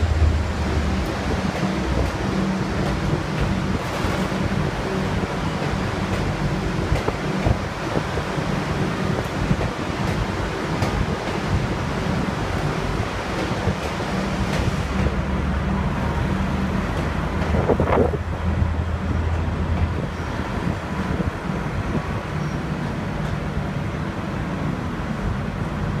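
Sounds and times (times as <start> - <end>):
train rolling past: 0.0 - 26.0
wind noise on microphone: 6.7 - 15.2, 17.0 - 22.6.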